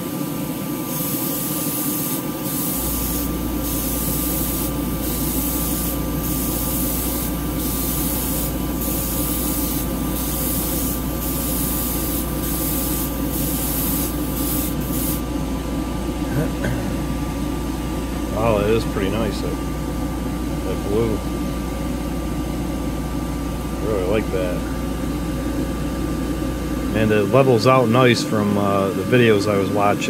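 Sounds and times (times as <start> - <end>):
fan running: 0.0 - 30.0
airbrush spraying hiss: 0.9 - 15.2.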